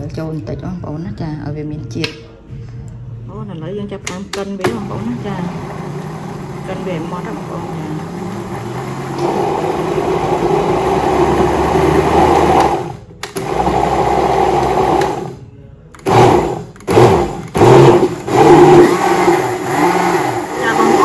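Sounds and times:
blender running: 4.8 - 15.4, 16.0 - 21.0.

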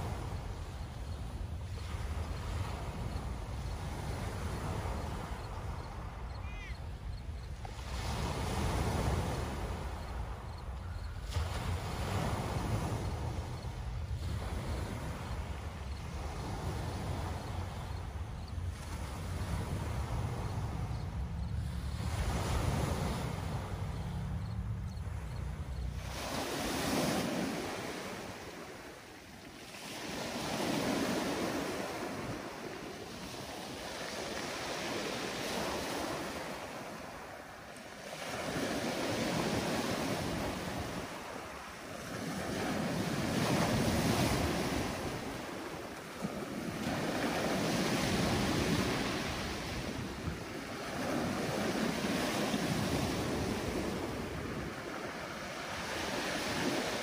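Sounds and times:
waves breaking on pebble beach: 7.6 - 10.5, 25.9 - 57.0.

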